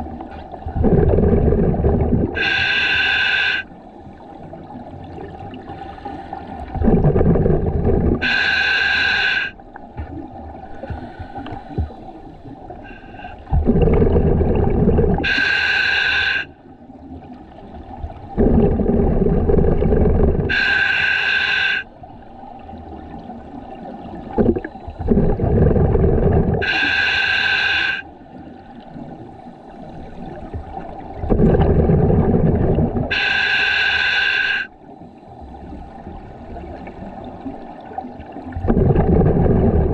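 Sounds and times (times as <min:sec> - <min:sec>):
rush of bubbles and air: 0:00.0 - 0:03.7, 0:04.6 - 0:16.5, 0:17.9 - 0:28.0, 0:28.7 - 0:34.7, 0:36.0 - 0:39.9
regulator hiss: 0:02.4 - 0:03.7, 0:08.2 - 0:09.6, 0:15.2 - 0:16.6, 0:20.5 - 0:21.9, 0:26.6 - 0:28.1, 0:33.1 - 0:34.7.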